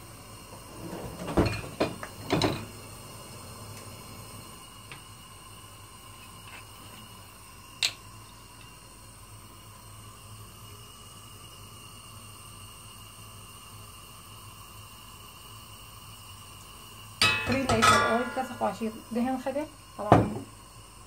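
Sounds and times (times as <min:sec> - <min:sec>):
steady low hum: 0:13.0 - 0:21.0.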